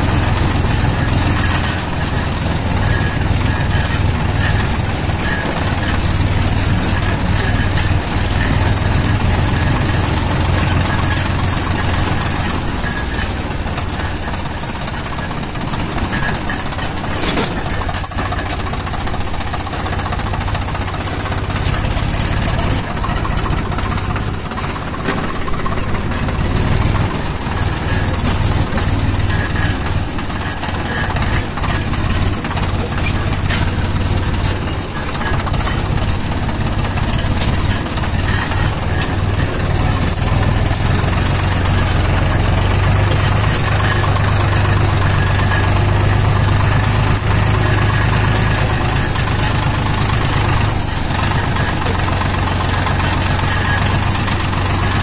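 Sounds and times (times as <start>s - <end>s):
tractor engine droning: 0.0s - 55.0s.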